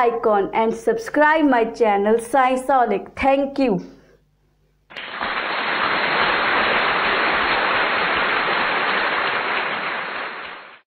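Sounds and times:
steady hissing noise: 4.8s - 10.8s.

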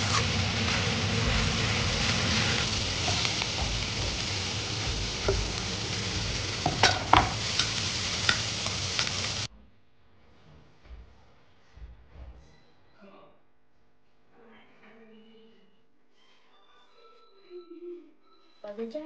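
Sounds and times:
metal spatula scraping a pan: 0.0s - 4.4s
scallions sizzling in a wok: 0.0s - 9.5s.

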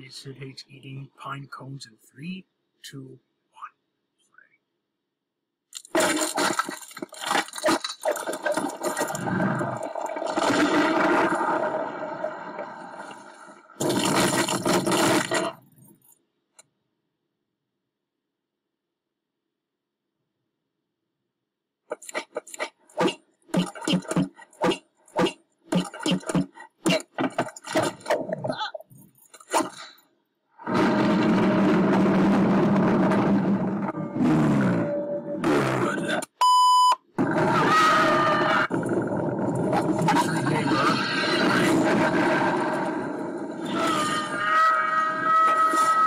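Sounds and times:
ice cracking: 5.8s - 15.6s
ice creaking and rumbling split: 5.8s - 15.6s, 30.6s - 36.0s, 37.2s - 46.0s.

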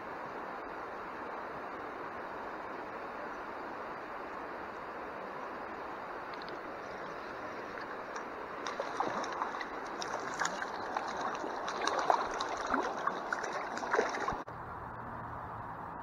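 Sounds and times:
stream water rushing and sloshing: 0.0s - 14.5s
faint low hum: 0.0s - 16.0s
water splashes: 6.2s - 14.5s.

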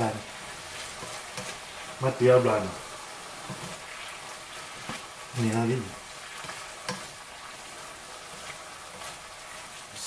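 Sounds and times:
meat sizzling in a frying pan: 0.0s - 10.0s
spatula taps: 3.4s - 3.8s, 6.3s - 7.2s.

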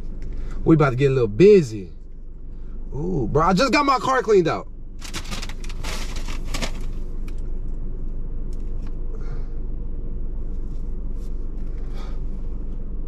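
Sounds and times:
low rumble inside car cabin: 0.0s - 13.0s
rustling and clicking handling noises: 5.0s - 7.4s.

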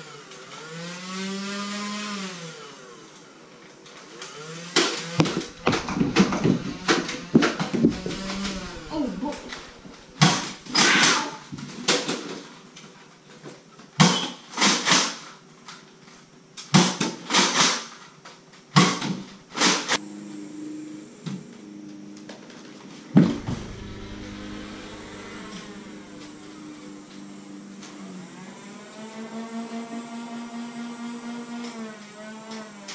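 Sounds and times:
steady low hum: 5.2s - 10.9s, 19.4s - 28.9s.

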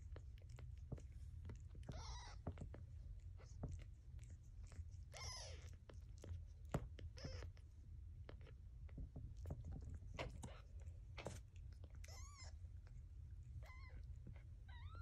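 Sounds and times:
low steady hum: 0.0s - 15.0s
kitten mewing: 1.8s - 2.4s, 5.1s - 5.8s.

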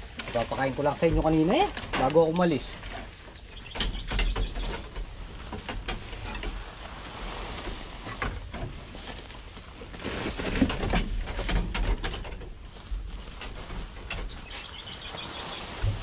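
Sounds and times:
light clicks and knocks: 0.1s - 6.8s.

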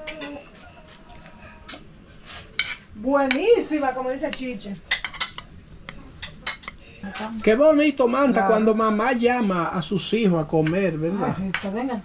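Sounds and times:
metal spoon clinking on plate: 4.9s - 6.8s.

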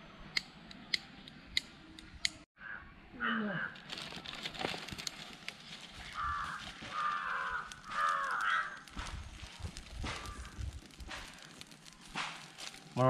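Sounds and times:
crow cawing: 2.6s - 3.8s, 6.0s - 9.1s, 10.0s - 11.6s.

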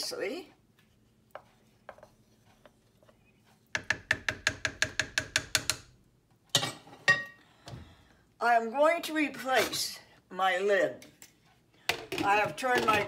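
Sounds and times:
wooden spoon knocking on crock: 3.8s - 5.9s.

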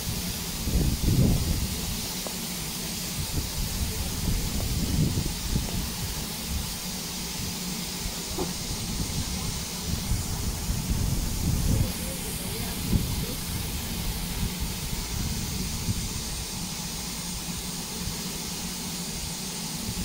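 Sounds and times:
steam locomotive hiss: 0.0s - 20.0s.

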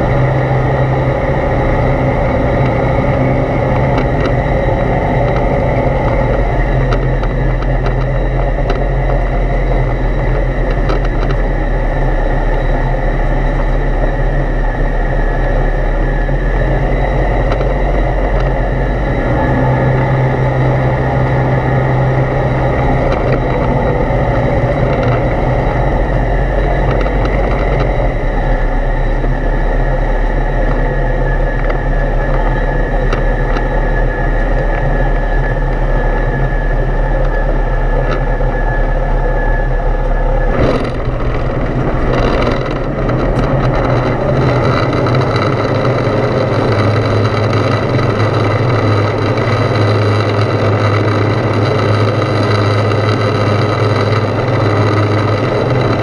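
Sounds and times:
aircraft engine and propeller droning: 0.0s - 56.0s
wheels knocking on runway: 40.5s - 56.0s.

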